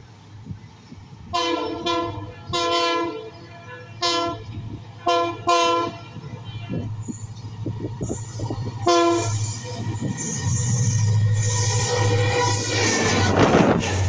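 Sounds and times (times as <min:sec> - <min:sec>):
train horn blasts: 0:01.3 - 0:07.1, 0:08.1 - 0:13.6.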